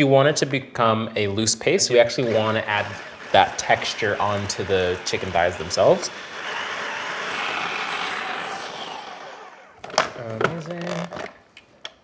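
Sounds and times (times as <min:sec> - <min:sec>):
food processor whirring: 0:01.9 - 0:10.0.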